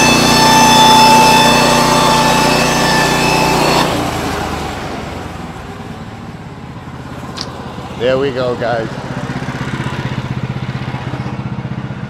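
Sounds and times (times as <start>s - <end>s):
band sawmill cutting wood: 0.0s - 5.6s, 7.0s - 11.8s.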